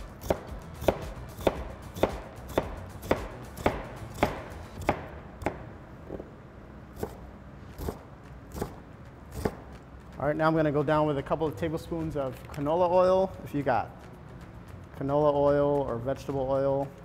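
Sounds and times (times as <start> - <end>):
knife chopping on cutting board: 0.0 - 5.6, 7.0 - 9.8.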